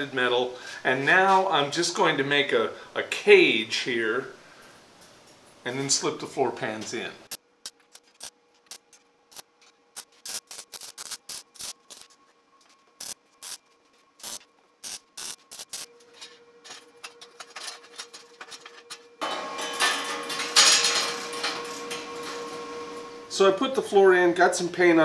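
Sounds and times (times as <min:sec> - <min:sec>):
welder crackling: 0:07.3 - 0:12.2, 0:13.0 - 0:13.6, 0:14.2 - 0:15.9.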